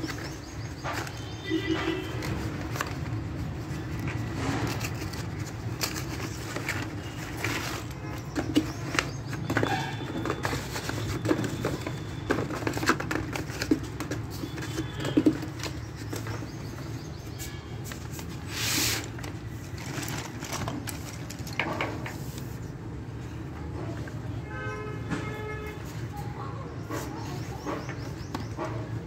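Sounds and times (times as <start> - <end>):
plastic bag rustle: 0.0 - 21.6
slate pencils clattering: 0.0 - 22.6.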